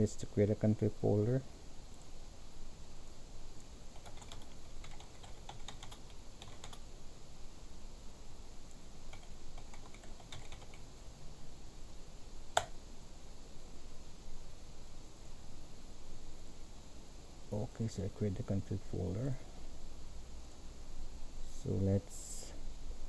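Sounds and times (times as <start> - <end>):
typing on computer keyboard: 3.9 - 6.8, 9.1 - 10.8.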